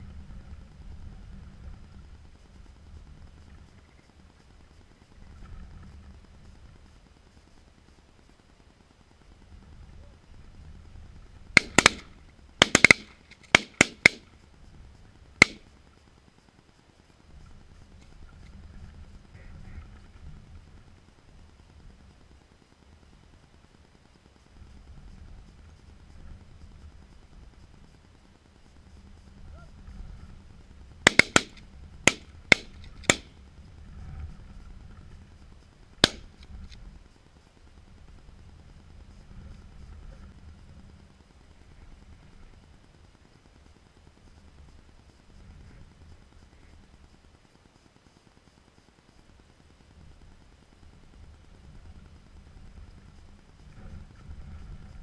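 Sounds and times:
shotgun blasts: 0:11.6 - 0:14.2, 0:15.4 - 0:15.6, 0:31.0 - 0:33.3, 0:36.0 - 0:36.4.

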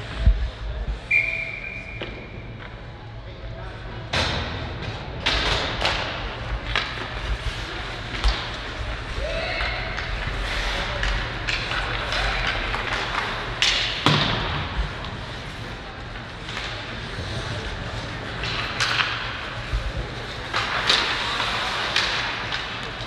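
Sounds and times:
skating noise: 0:04.2 - 0:23.0
hockey sticks and puck knocking: 0:04.8 - 0:23.0
spectator chatter: 0:05.8 - 0:23.0.

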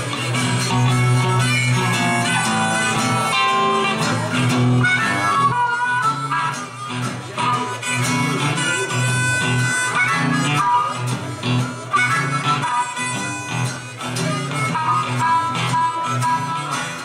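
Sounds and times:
acoustic guitars strumming: 0:00.0 - 0:17.0
blues harmonica: 0:00.0 - 0:17.0.

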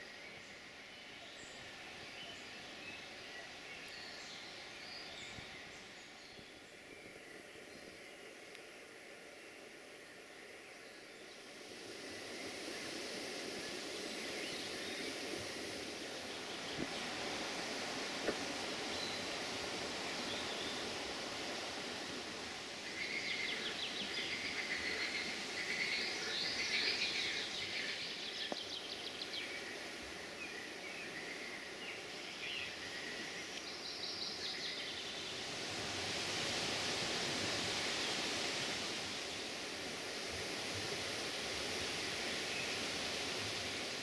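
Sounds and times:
steady rushing noise: 0:08.0 - 0:44.0
birds singing: 0:22.4 - 0:35.4.

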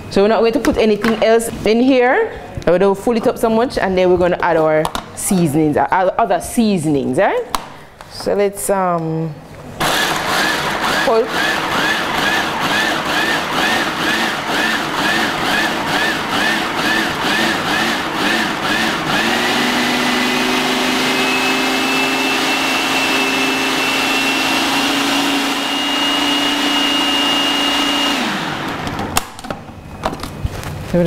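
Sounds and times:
food processor motor whirring: 0:09.8 - 0:29.2.

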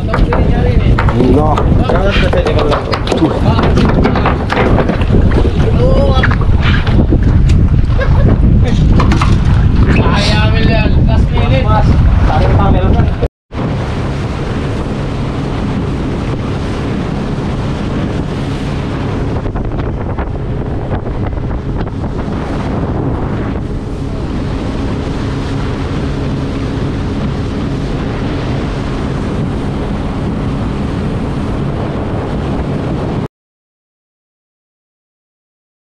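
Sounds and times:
water rushing past hull: 0:00.0 - 0:33.3
wind buffeting microphone: 0:00.0 - 0:33.3
boat engine droning: 0:13.5 - 0:33.3.

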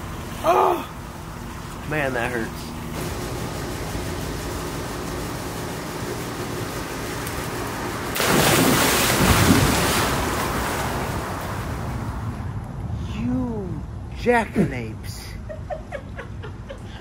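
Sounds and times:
big water splash: 0:08.0 - 0:12.5.

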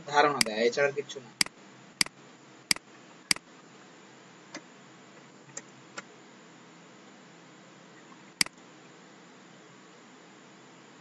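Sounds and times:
steady low hiss: 0:00.0 - 0:11.0.

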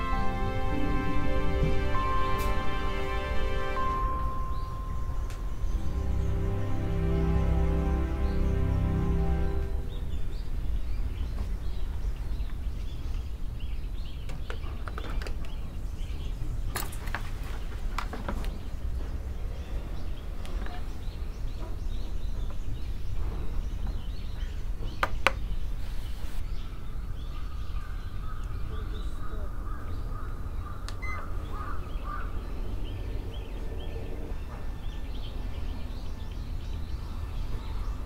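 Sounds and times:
steady low rumble: 0:00.0 - 0:12.5
birds calling faintly: 0:00.0 - 0:38.0.

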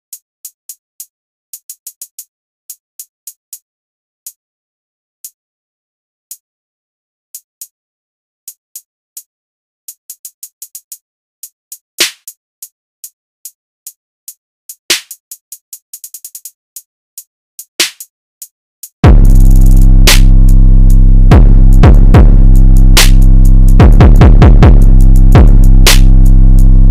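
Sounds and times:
hi-hat ticks: 0:00.1 - 0:04.4, 0:07.4 - 0:07.8, 0:08.5 - 0:09.3, 0:09.9 - 0:26.9
hi-hat roll: 0:14.7 - 0:16.9, 0:19.0 - 0:26.9
loud drum hits: 0:19.0 - 0:19.4, 0:21.3 - 0:22.4, 0:23.8 - 0:26.0.

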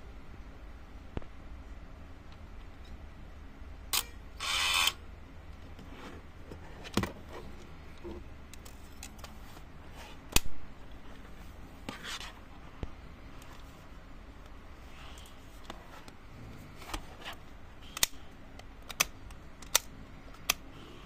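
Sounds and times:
rustles and scrapes: 0:05.7 - 0:10.3, 0:10.9 - 0:13.9.

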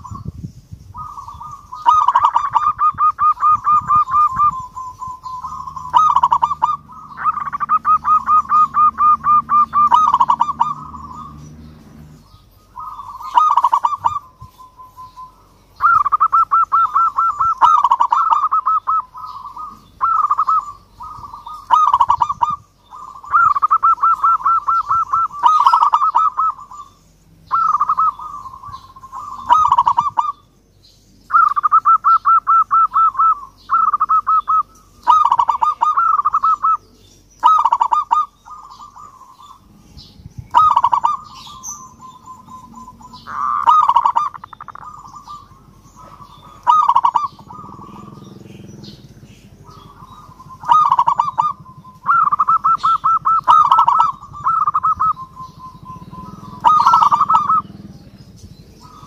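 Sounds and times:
dove cooing: 0:00.0 - 0:30.5, 0:31.3 - 0:59.0.

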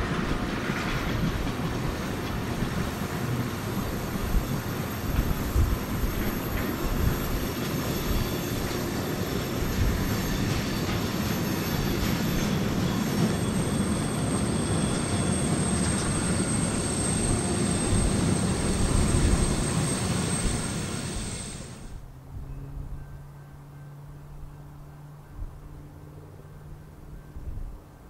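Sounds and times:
freight train rumbling past: 0:00.0 - 0:23.8
high-pitched wheel squeal: 0:06.2 - 0:22.0.

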